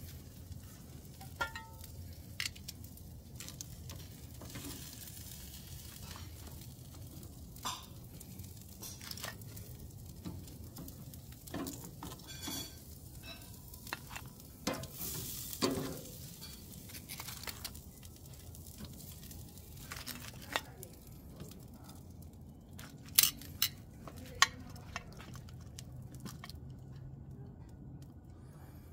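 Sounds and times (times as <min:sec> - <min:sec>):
grill sizzling: 0:00.0 - 0:26.9
metal tongs clicking and scraping: 0:01.2 - 0:02.8, 0:22.8 - 0:26.6.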